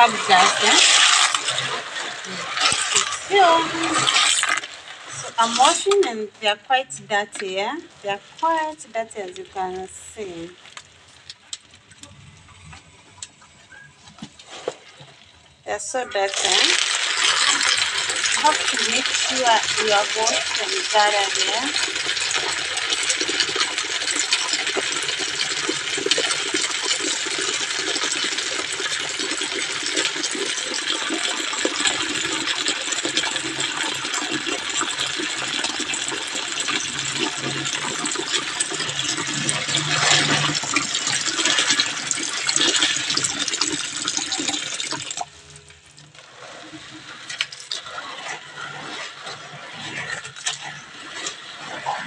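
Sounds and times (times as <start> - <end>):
water pouring into a plastic basin: 0.0 - 5.9, 16.2 - 52.0
beans sloshing in water: 16.2 - 26.0.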